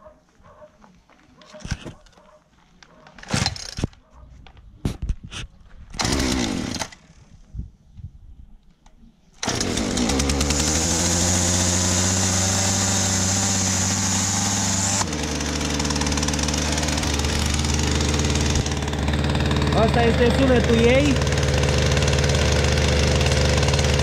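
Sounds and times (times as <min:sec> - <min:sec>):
starter cord pull: 0:06.0 - 0:07.0
chainsaw engine idling: 0:06.0 - 0:07.2, 0:09.4 - 0:24.0.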